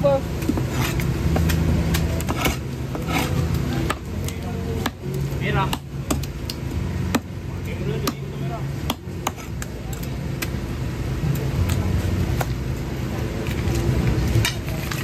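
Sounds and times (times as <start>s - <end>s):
people talking: 0.0s - 0.3s, 1.9s - 5.8s, 7.5s - 15.0s.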